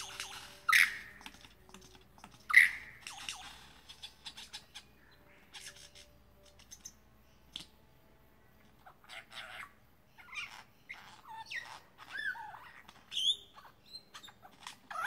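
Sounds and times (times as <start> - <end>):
lyrebird calling: 0.0 - 1.2, 2.4 - 6.9.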